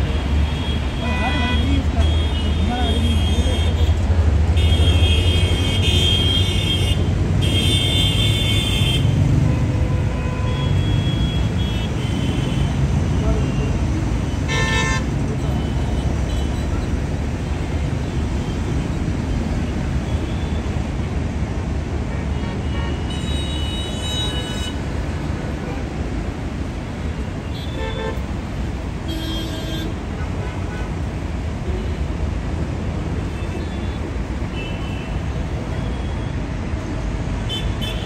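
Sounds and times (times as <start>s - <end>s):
vehicle horns honking: 0.0s - 12.8s, 14.4s - 16.8s, 27.4s - 28.3s, 29.0s - 31.0s, 37.5s - 38.0s
road traffic rumble: 0.0s - 38.0s.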